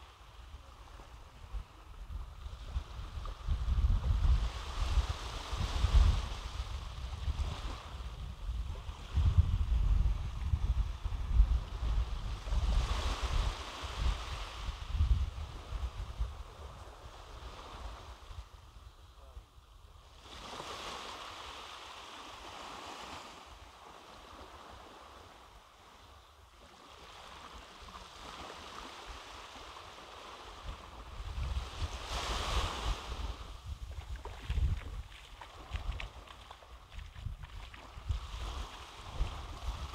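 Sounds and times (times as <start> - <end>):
surf washing onto beach: 0.0 - 18.8, 20.0 - 39.9
wind rumbling on microphone: 0.0 - 39.9.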